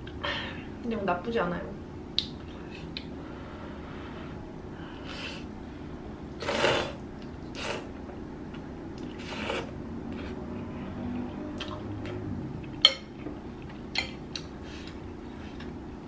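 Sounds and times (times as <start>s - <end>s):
person slurping noodles: 6.4s - 7.9s, 9.1s - 10.4s.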